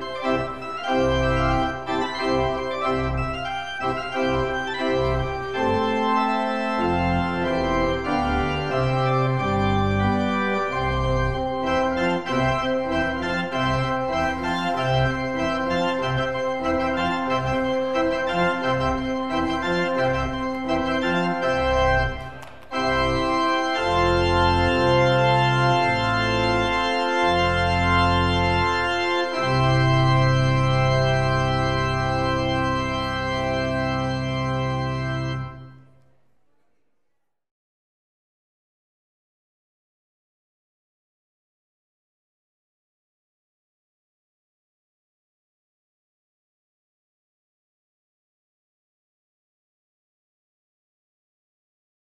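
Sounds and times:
church organ playing: 0.0s - 35.9s.

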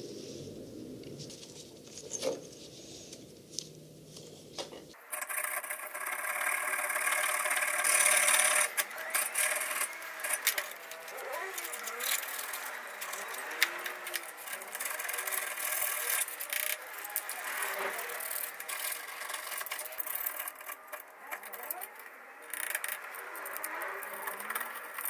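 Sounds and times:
hand file scraping steel: 5.2s - 22.0s.

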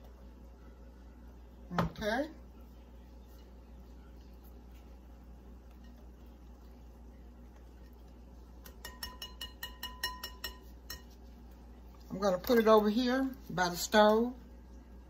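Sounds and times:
utensil clinking against bowl: 8.6s - 11.2s.

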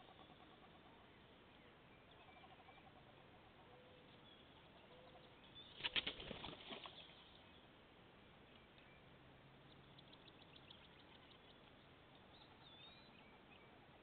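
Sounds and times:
duck wings flapping: 5.8s - 7.0s.

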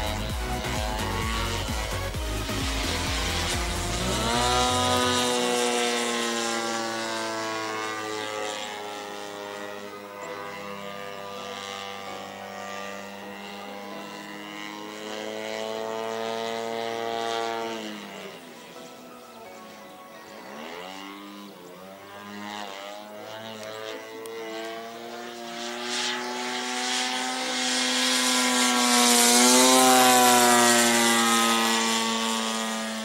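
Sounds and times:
model plane engine: 0.0s - 33.0s.

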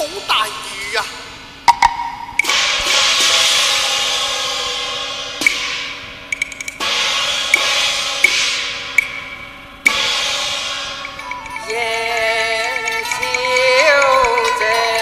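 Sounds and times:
sharp percussion clicks: 1.7s - 3.3s, 5.4s - 15.0s
gong crashes: 1.8s - 14.7s
cymbal crashes: 2.0s - 11.9s.

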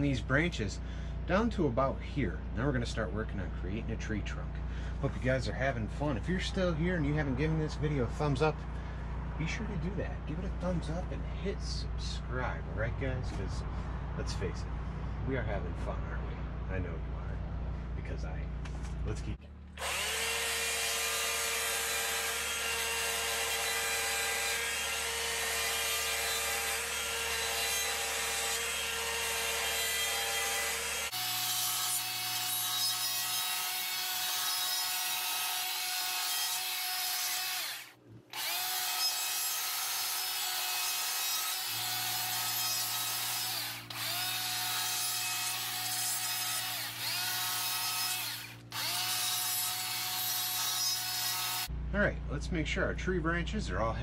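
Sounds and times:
die grinder whining on wood: 19.8s - 51.7s.

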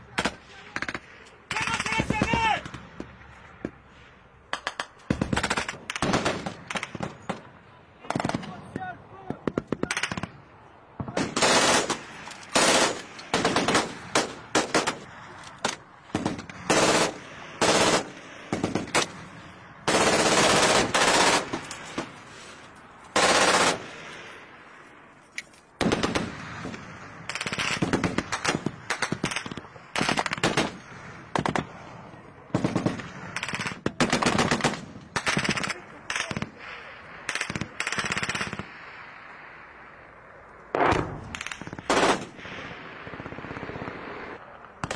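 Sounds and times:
automatic machine-gun fire: 11.4s - 15.0s, 16.2s - 19.1s, 19.9s - 21.6s, 23.2s - 23.9s, 40.8s - 42.4s
gunfire echo: 40.7s - 44.9s.

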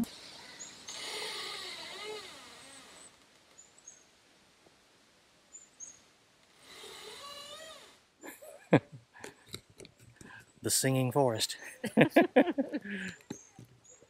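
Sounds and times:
trees creaking in the breeze: 0.0s - 10.7s.

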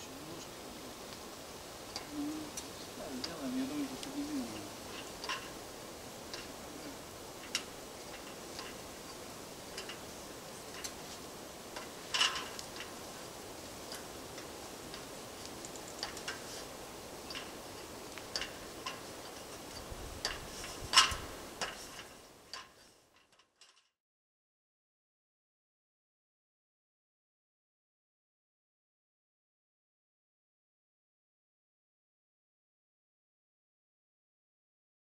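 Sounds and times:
steady hiss: 0.0s - 23.5s
light clicks and taps: 13.8s - 23.8s.

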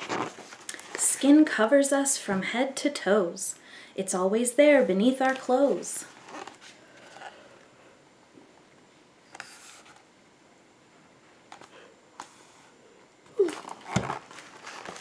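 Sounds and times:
picture book rustling and bumping: 0.0s - 1.0s, 13.4s - 15.0s.

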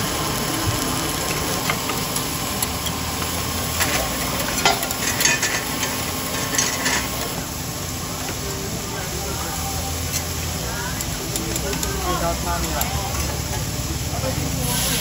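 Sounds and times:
eggs sizzling on griddle: 0.0s - 15.0s
metal spatula scraping griddle: 3.6s - 7.3s.

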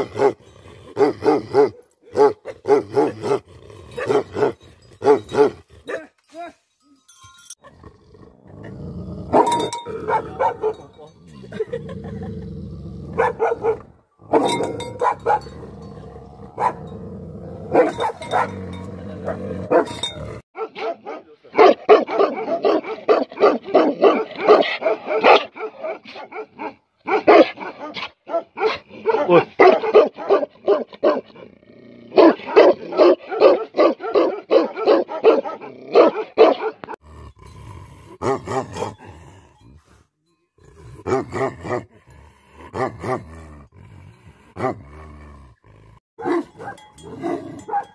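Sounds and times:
dogs barking: 0.0s - 6.1s, 9.3s - 12.0s, 13.1s - 16.9s, 17.5s - 31.4s, 32.1s - 37.0s, 46.2s - 47.9s.

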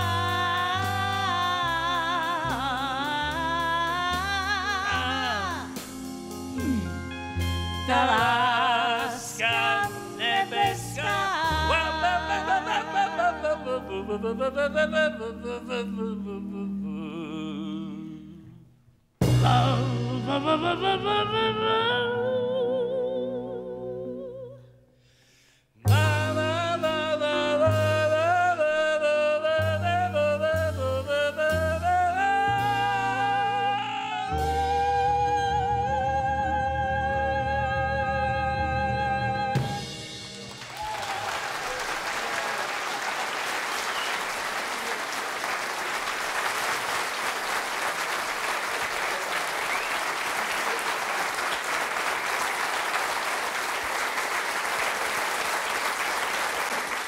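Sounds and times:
person singing: 0.0s - 6.0s, 6.6s - 24.8s, 25.8s - 40.2s
small band playing: 0.0s - 13.0s, 19.2s - 21.0s, 25.9s - 28.5s, 38.7s - 57.0s
audience applauding: 40.4s - 57.0s.

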